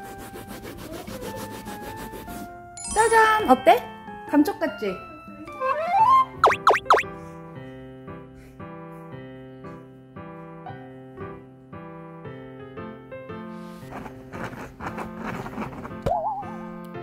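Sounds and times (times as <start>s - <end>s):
electric piano background music: 0.0s - 17.0s
sharp swishing effects: 6.4s - 7.1s.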